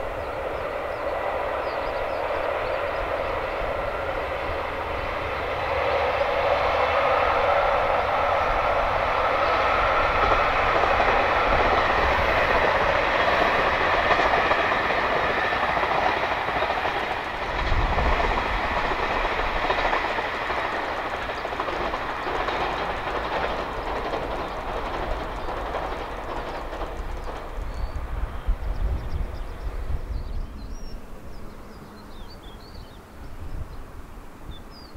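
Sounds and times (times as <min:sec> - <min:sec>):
diesel train passing: 0:00.0 - 0:34.9
wheels clattering on rails: 0:09.4 - 0:29.6.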